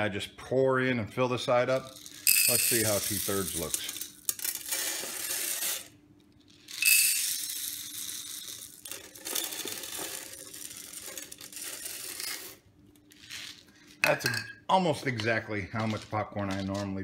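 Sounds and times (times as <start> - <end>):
popcorn kernels pouring into pan: 2.0 - 5.9, 6.8 - 12.6.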